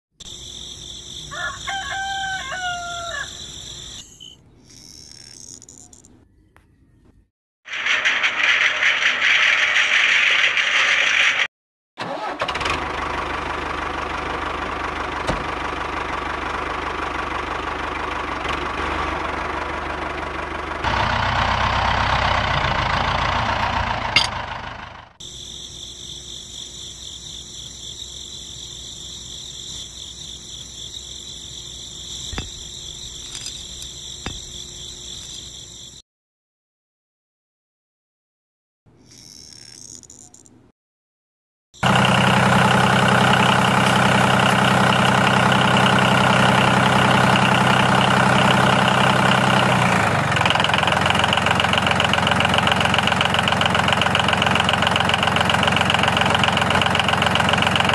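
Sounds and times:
small motor running: 3.3 - 6.0, 32.0 - 35.8, 39.0 - 40.4.

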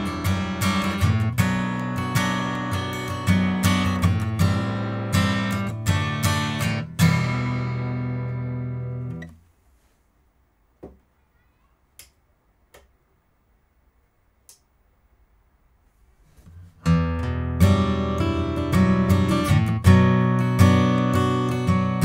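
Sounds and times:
acoustic guitar strumming: 0.0 - 9.4, 16.8 - 22.0.

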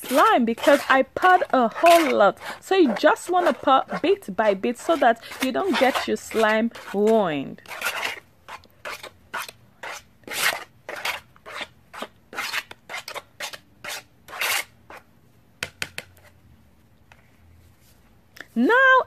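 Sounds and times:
spoon scraping a bowl: 0.0 - 15.1.

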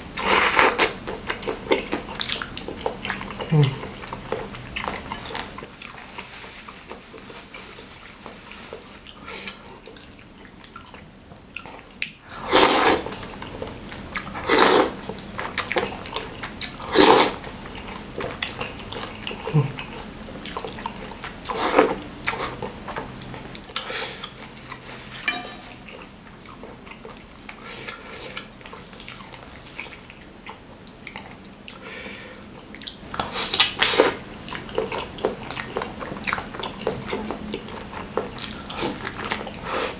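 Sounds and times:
mouth eating noises: 0.1 - 39.9
wet noodle slurping: 12.4 - 15.0, 15.6 - 20.0.

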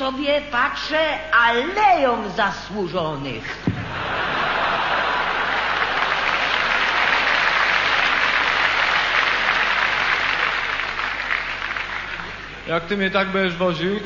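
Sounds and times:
audience applauding: 3.8 - 12.7.

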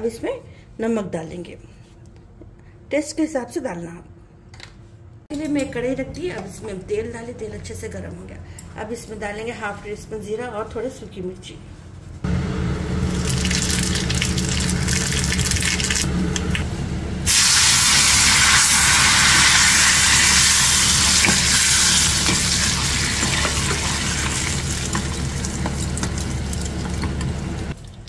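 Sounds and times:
hot oil hissing loudly: 12.3 - 16.1, 17.3 - 27.7
oil sizzling in a pan: 13.0 - 16.1, 17.3 - 27.7.

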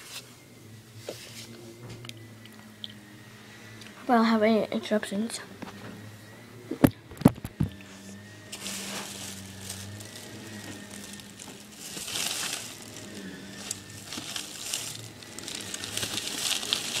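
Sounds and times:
candy bag rustling: 8.4 - 17.0.

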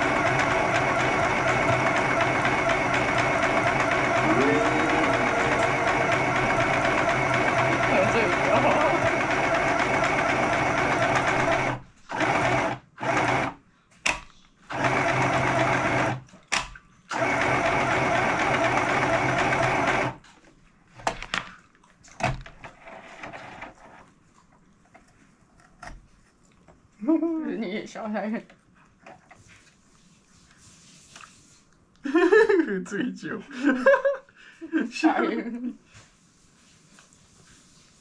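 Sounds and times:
sewing machine stitching: 0.0 - 13.6, 14.7 - 16.3, 17.1 - 20.3.

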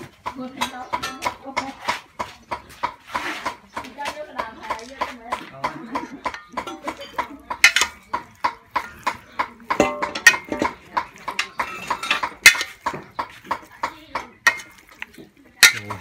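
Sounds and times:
metal ladle scraping a pot: 6.3 - 16.0
metal clangs: 8.8 - 13.1, 15.6 - 16.0.

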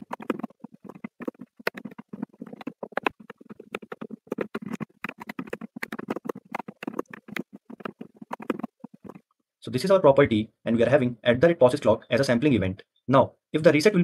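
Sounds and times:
keyboard typing: 0.0 - 9.4.

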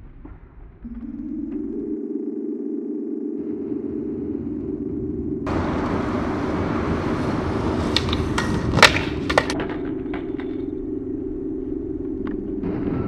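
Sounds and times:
skateboard and skater hitting ground: 5.5 - 10.6
skateboard wheels rolling on concrete: 5.5 - 10.6
skateboard clattering: 6.4 - 10.6.

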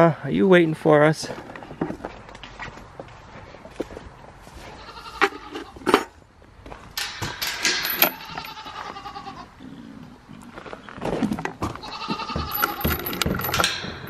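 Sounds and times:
goats bleating: 4.7 - 5.8, 8.1 - 9.6, 11.8 - 13.0
sharp clanks: 7.0 - 8.6, 12.4 - 14.0.

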